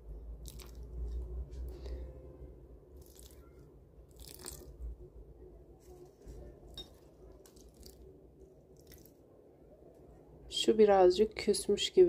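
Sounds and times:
water trickling onto soil: 0:00.4 - 0:01.1, 0:03.0 - 0:04.8, 0:07.3 - 0:08.1, 0:08.7 - 0:09.2
faint handling noises: 0:05.6 - 0:08.0.

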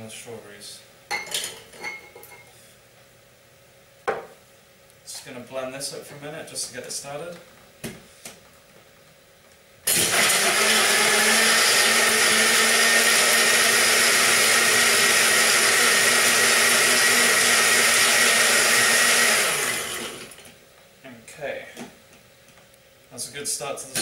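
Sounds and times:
blender crushing ice: 0:09.9 - 0:20.5.

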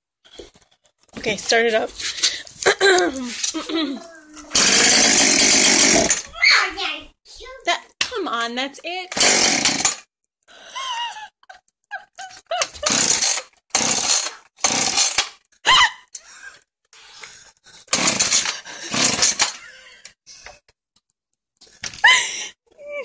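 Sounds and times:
chainsaw recoil starter pulled: 0:04.5 - 0:06.3, 0:09.1 - 0:10.1, 0:12.6 - 0:15.5, 0:17.9 - 0:19.7.

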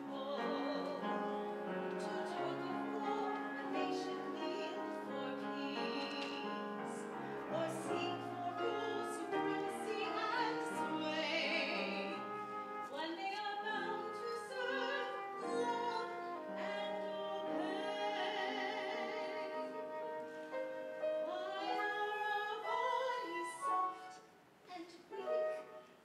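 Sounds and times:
solo voice singing with vibrato: 0:00.0 - 0:20.2.

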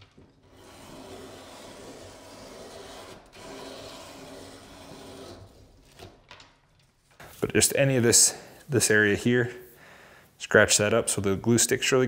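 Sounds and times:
leather rubbing on spinning wheel: 0:00.5 - 0:05.6.

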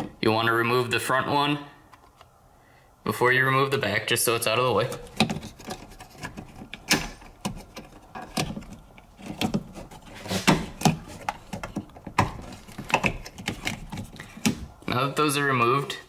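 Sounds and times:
plastic connectors clicking and rattling: 0:04.8 - 0:10.1, 0:10.7 - 0:14.8.

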